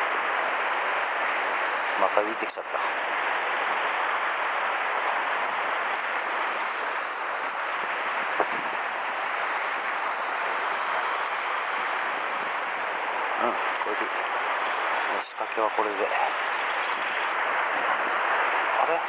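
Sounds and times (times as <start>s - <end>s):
surf washing against rocks: 0.0s - 19.0s
wind on microphone: 5.1s - 15.2s.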